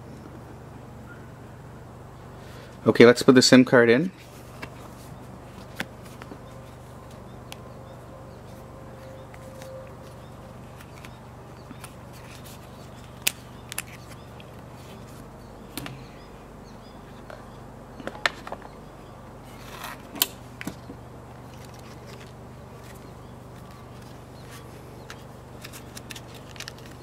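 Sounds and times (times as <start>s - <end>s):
card rustling: 4.2s - 7.2s, 8.4s - 15.3s, 21.4s - 27.0s.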